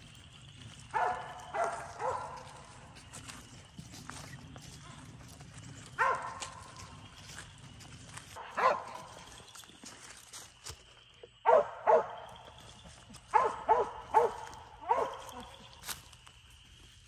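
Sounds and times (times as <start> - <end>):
dog barking: 0.9 - 2.8, 6.0 - 6.7, 8.4 - 9.1, 11.4 - 12.2, 13.3 - 15.6.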